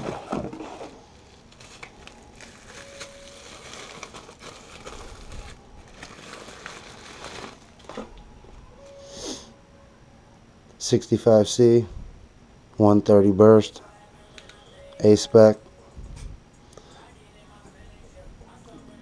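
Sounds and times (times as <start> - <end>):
bubble wrap crinkling: 0.0 - 8.3.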